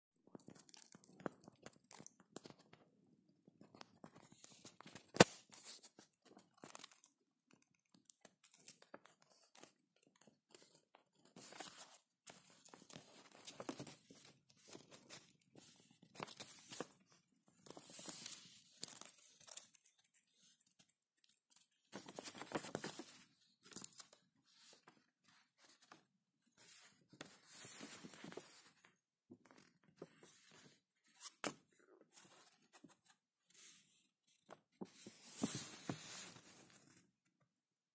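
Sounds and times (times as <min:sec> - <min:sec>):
paper rustling: 0:22.0 - 0:26.0, 0:34.8 - 0:37.0.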